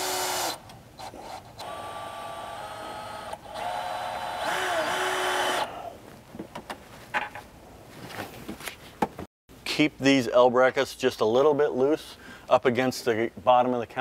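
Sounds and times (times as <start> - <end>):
cordless drill motor whine: 0.0 - 5.7.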